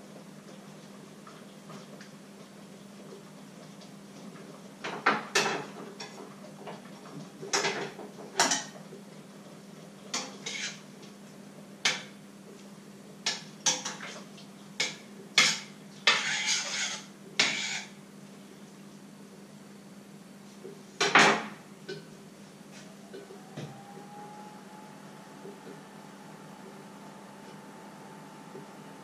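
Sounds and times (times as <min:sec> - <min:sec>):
utensil scraping pan: 0:10.2 - 0:10.8, 0:15.4 - 0:18.0
steady low hum: 0:17.1 - 0:29.0.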